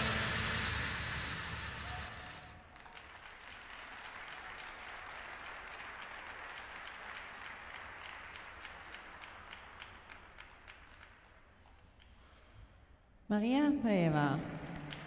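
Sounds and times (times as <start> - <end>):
audience applauding: 0.0 - 11.4, 14.6 - 15.0
single claps: 2.6 - 12.1.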